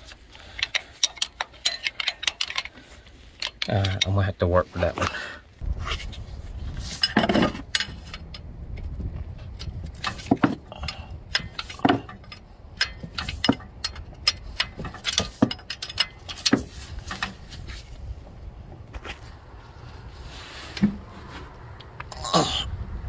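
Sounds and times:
wrench clinking on metal nut: 0.4 - 2.8, 9.6 - 17.5
low rumble: 5.6 - 11.6, 17.0 - 23.0.

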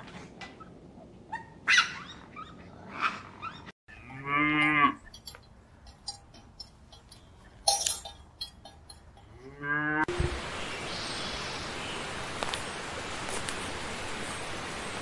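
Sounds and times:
outdoor ambience hiss: 3.9 - 15.0.

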